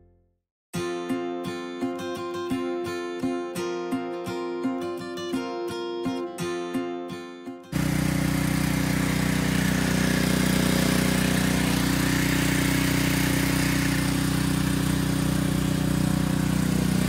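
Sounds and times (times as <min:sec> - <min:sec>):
pressure washer motor drone: 0:07.7 - 0:17.0
water spray hissing: 0:07.8 - 0:17.0.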